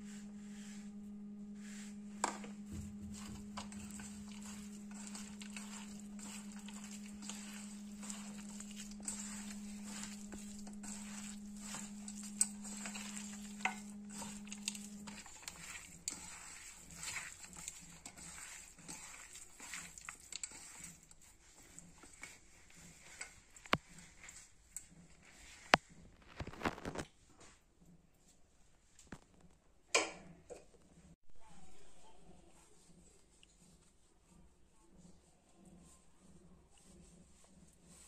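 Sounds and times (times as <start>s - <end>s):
low hum: 0.0s - 16.1s
hand mixing food squelching: 0.0s - 26.0s, 35.8s - 38.0s.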